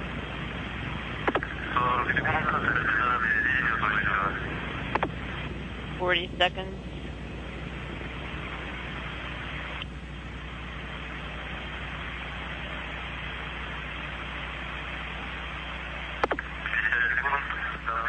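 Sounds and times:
radio static hiss: 0:00.0 - 0:18.0
radio clicks: 0:01.2 - 0:01.8, 0:04.8 - 0:05.4, 0:09.5 - 0:10.0, 0:16.2 - 0:17.8.

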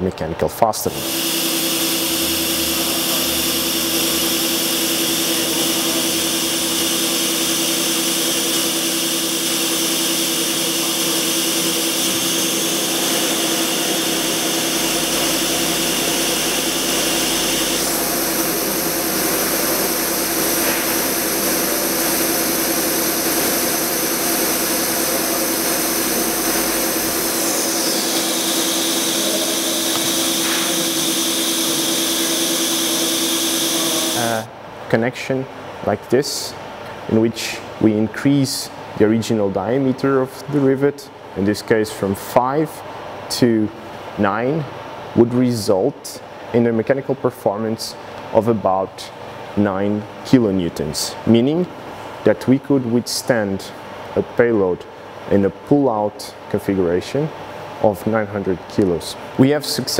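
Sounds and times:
machine spindle whine: 0:00.9 - 0:34.5.

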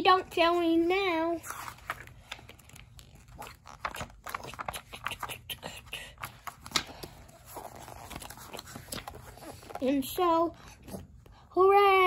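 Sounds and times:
book page flapping: 0:01.4 - 0:05.3, 0:06.2 - 0:09.9.

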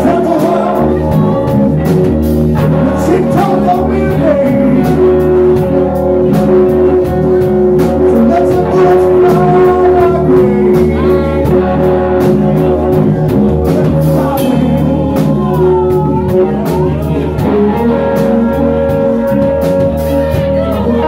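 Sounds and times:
blues-rock band playing: 0:00.0 - 0:21.0.

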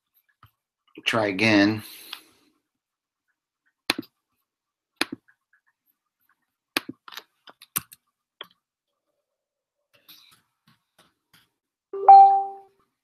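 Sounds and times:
keyboard and mouse clicks: 0:03.2 - 0:04.2, 0:05.0 - 0:08.6.

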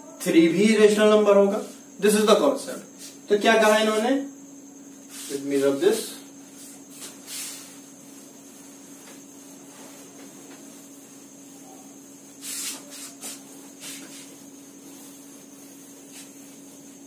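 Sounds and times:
steady low hum: 0:00.0 - 0:17.0
cloth wiping whiteboard: 0:06.5 - 0:17.0.

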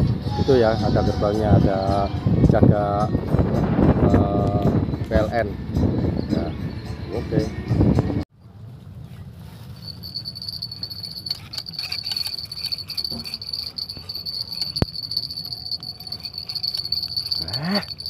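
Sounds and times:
insects chirring: 0:09.8 - 0:18.0.

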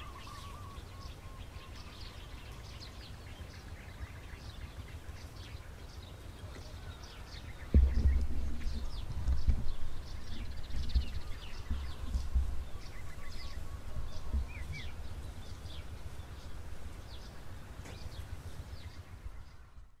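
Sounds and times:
sparrows chirping: 0:00.0 - 0:19.9
low rumble: 0:07.5 - 0:20.0.

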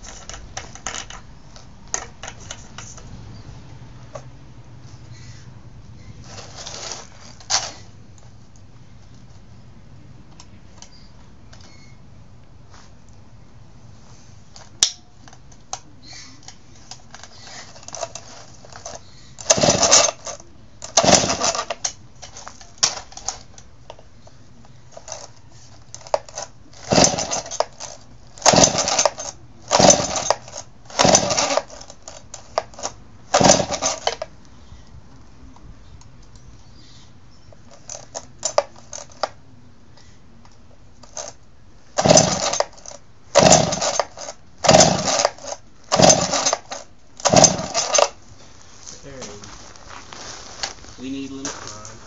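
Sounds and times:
chainsaw starter rope pulls: 0:00.0 - 0:01.2, 0:06.2 - 0:07.9, 0:16.8 - 0:24.0, 0:24.9 - 0:34.3, 0:37.7 - 0:39.3, 0:41.0 - 0:41.4, 0:42.0 - 0:48.2.

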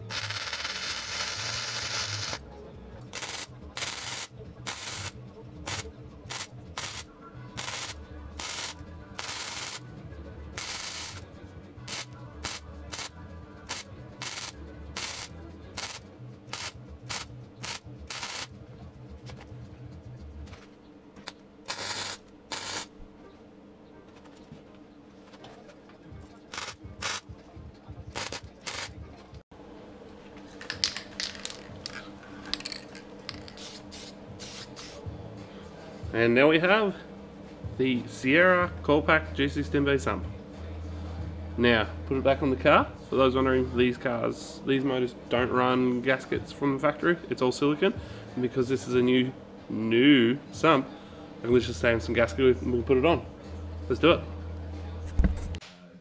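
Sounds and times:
welding arc crackling: 0:00.0 - 0:02.4, 0:03.1 - 0:09.8, 0:10.6 - 0:11.2, 0:11.9 - 0:13.1, 0:13.7 - 0:18.5, 0:21.7 - 0:22.9, 0:26.5 - 0:27.2, 0:28.1 - 0:29.0.

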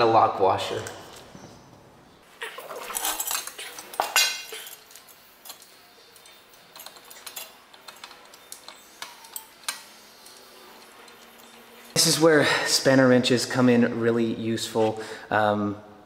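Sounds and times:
metal bolt and washer clinking: 0:02.7 - 0:12.1.

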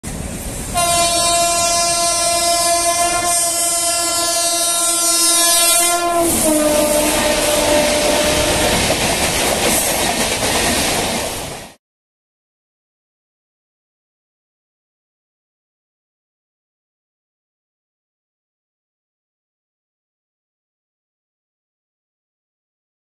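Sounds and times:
electric locomotive horn blast: 0:00.7 - 0:08.8
train coaches clattering over rails: 0:06.2 - 0:11.8.

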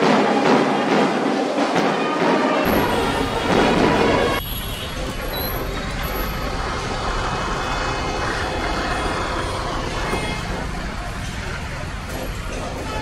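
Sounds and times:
diesel locomotive rumble: 0:02.7 - 0:13.0.

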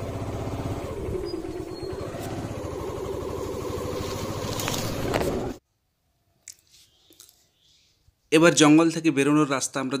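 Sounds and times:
motorcycle engine at low revs: 0:00.0 - 0:05.6.

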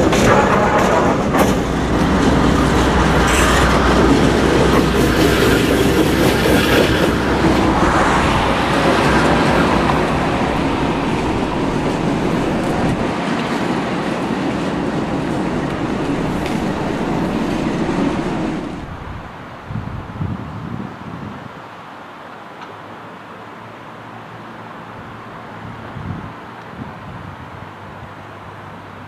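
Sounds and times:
wheels on rails: 0:00.0 - 0:19.4
locomotive engine rumble: 0:00.0 - 0:19.7.

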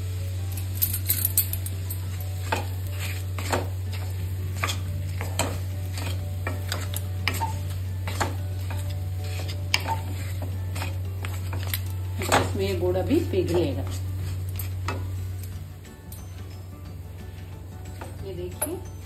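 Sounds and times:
wooden spoon scraping a pan: 0:01.8 - 0:15.6.

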